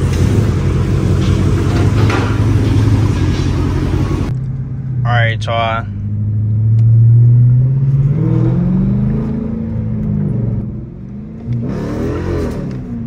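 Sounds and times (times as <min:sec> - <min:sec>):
car engine accelerating: 0:00.0 - 0:05.1, 0:05.9 - 0:13.0.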